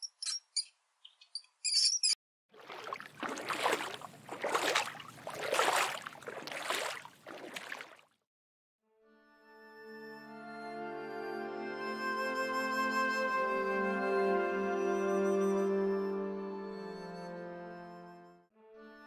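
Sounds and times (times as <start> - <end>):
high-pitched squeaks: 0.0 - 2.2
water sloshing in surges: 2.6 - 8.2.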